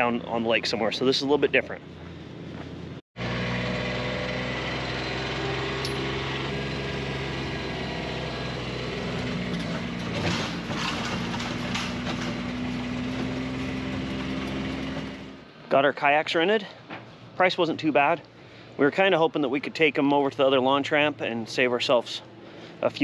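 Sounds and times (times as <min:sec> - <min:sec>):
golf cart motor humming: 0:03.2 - 0:15.4.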